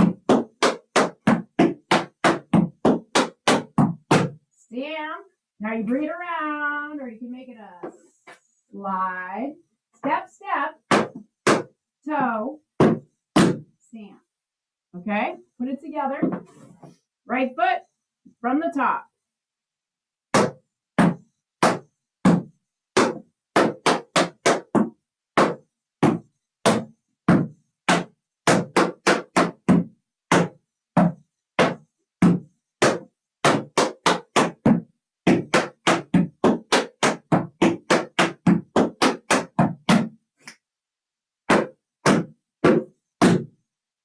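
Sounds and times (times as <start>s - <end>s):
tap shoes on wooden board: 0.0s - 4.4s, 10.9s - 11.7s, 12.8s - 13.6s, 16.2s - 16.5s, 20.4s - 40.1s, 41.5s - 43.5s.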